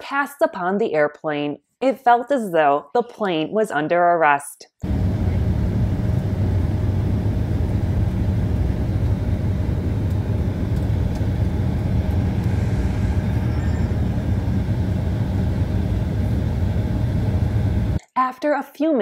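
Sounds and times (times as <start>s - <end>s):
airliner cabin rumble: 4.8s - 18.0s
faint thin hum: 4.8s - 18.0s.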